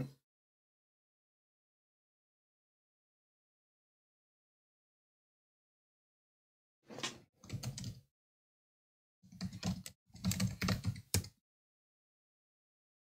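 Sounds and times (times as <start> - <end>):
typing on computer keyboard: 7.4 - 8.0, 9.3 - 11.4.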